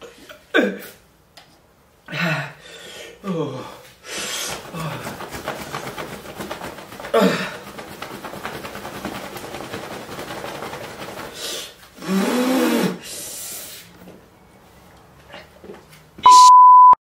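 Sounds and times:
man breathing hard and groaning: 2.0s - 5.2s, 7.1s - 7.6s.

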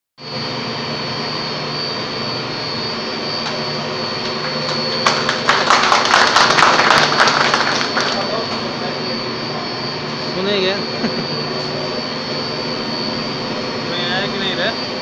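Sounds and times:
machinery droning with high whine: 0.2s - 15.0s
people clapping: 4.2s - 8.3s.

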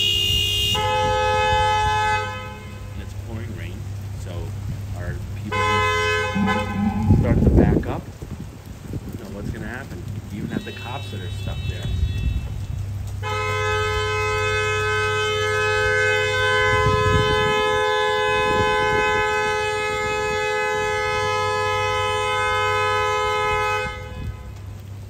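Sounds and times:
car horn long blast: 0.0s - 2.8s, 5.5s - 7.4s, 13.2s - 24.5s.

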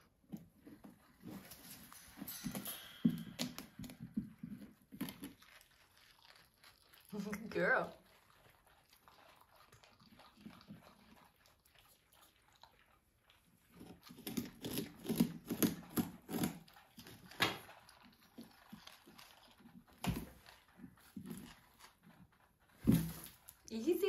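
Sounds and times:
porcupines crunching pumpkin: 0.0s - 24.0s.

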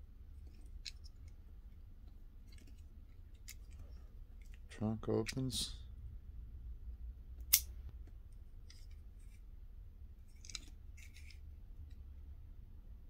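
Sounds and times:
faint clicks and rubbing: 0.4s - 5.4s.

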